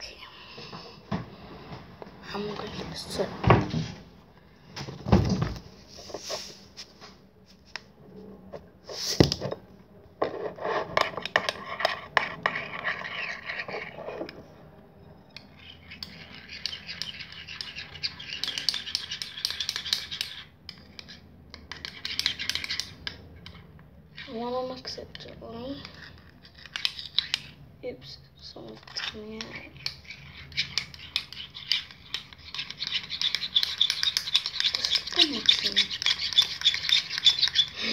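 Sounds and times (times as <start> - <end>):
metal spoon scraping bowl: 10.2 - 27.6, 28.6 - 37.9.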